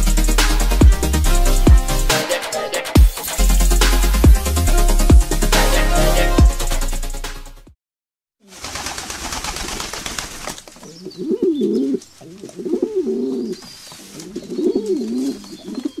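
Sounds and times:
pigeon cooing: 10.8s - 16.0s.

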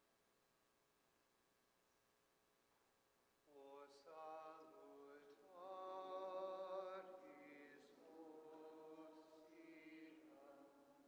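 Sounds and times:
slow chant-like singing: 3.5s - 11.0s.

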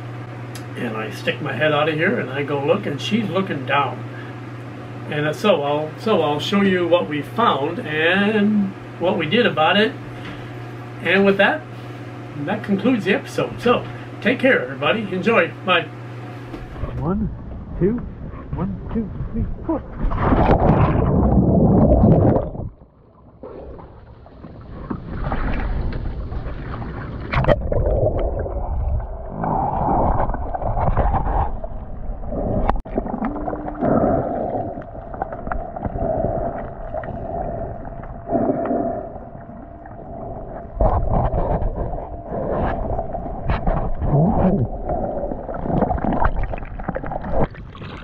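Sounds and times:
faint steady hum: 0.0s - 48.0s
underwater rumbling wash: 16.6s - 48.0s.

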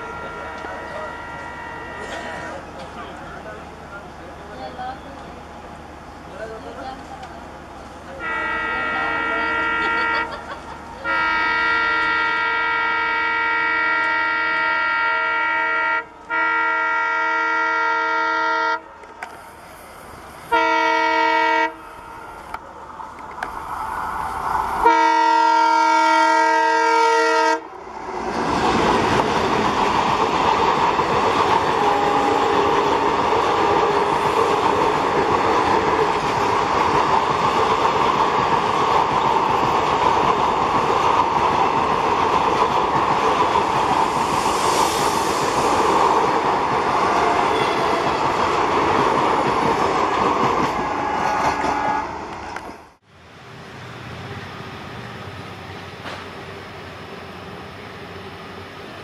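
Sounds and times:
locomotive horn blast: 0.0s - 2.6s, 8.2s - 10.4s, 11.0s - 19.0s, 20.5s - 22.4s, 24.8s - 27.7s, 31.8s - 33.0s, 47.2s - 48.2s, 50.7s - 52.3s
train rumble: 0.0s - 59.0s.

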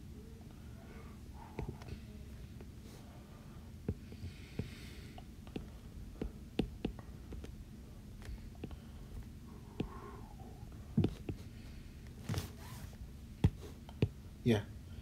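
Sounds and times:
low steady hum: 0.0s - 15.0s
stylus tapping on screen: 1.5s - 2.0s, 3.8s - 7.6s, 8.2s - 10.1s, 11.0s - 11.5s, 13.4s - 14.2s.

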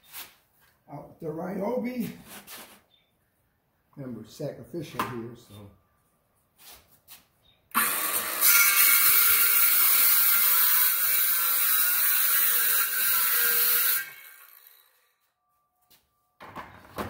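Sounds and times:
circular saw cutting board: 7.7s - 15.2s.

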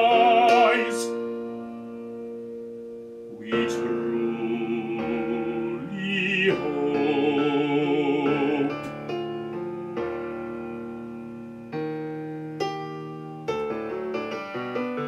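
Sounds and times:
baritone singing with vibrato: 0.0s - 1.4s, 3.3s - 11.6s
piano chords ringing: 0.0s - 15.0s.

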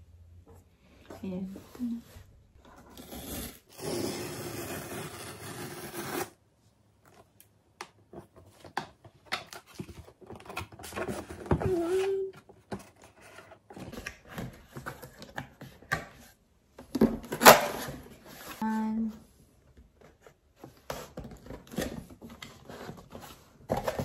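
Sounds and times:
box sliding against cardboard: 2.7s - 6.3s.

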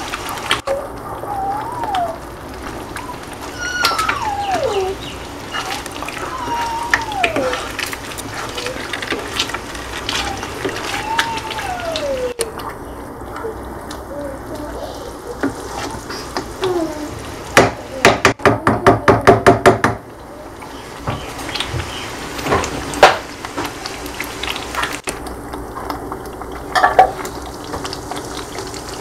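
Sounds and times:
cat meowing: 3.4s - 7.8s, 10.1s - 12.6s.

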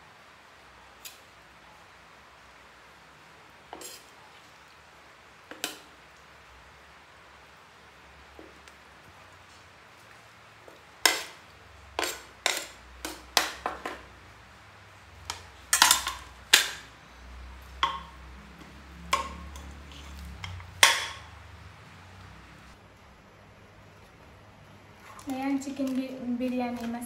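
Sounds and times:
metal utensils clattering: 12.0s - 14.0s, 15.2s - 16.9s, 19.1s - 21.3s.

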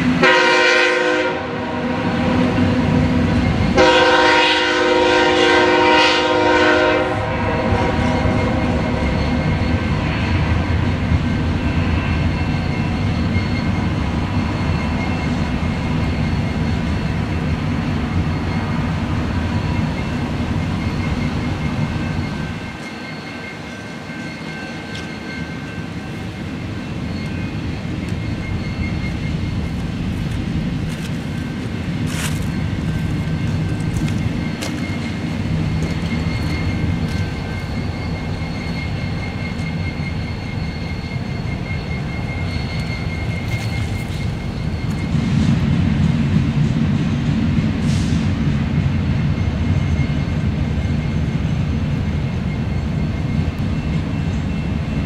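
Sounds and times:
rumble of wheels on track: 0.0s - 55.0s
thin ringing tones: 18.2s - 45.2s.

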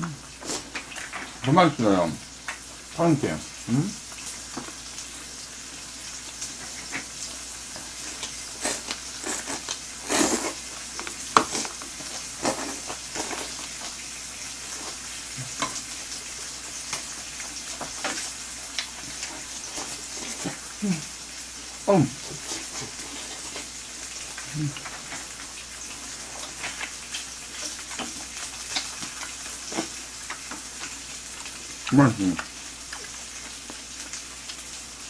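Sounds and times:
meat sizzling on a grill pan: 0.1s - 35.0s
chewing smacks: 26.4s - 34.8s.

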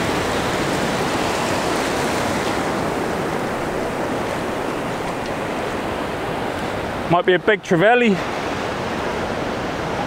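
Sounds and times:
ocean waves breaking: 0.0s - 10.0s.

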